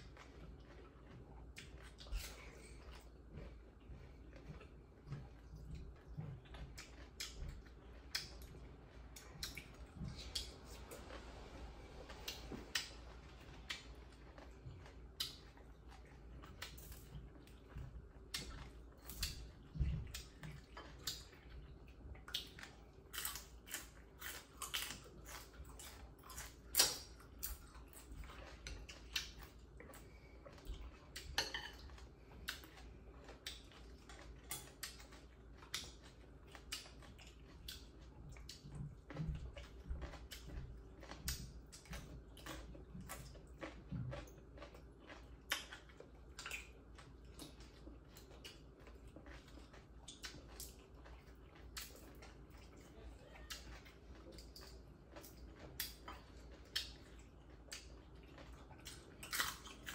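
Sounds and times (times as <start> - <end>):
chewing with mouth clicks: 0.0 - 59.9
low steady hum: 0.0 - 59.9
plates and bowls clinking: 31.4 - 31.9.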